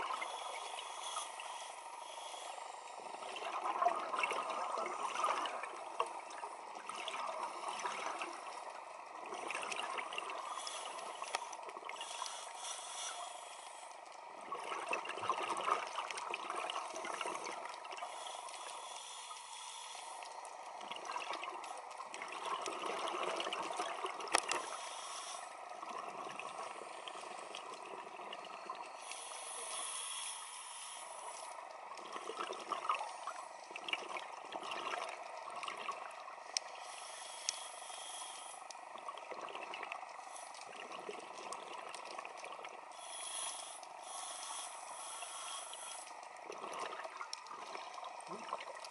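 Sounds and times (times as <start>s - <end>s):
diver breathing through regulator: 0.0s - 3.4s, 10.3s - 14.0s, 17.0s - 20.5s, 24.5s - 25.7s, 28.9s - 31.6s, 36.7s - 38.8s, 42.9s - 46.3s.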